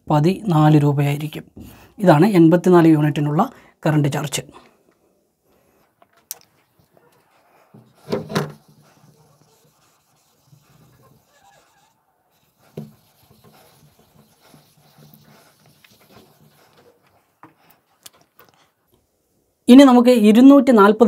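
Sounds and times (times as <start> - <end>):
duster rubbing whiteboard: 6.8 - 18.3.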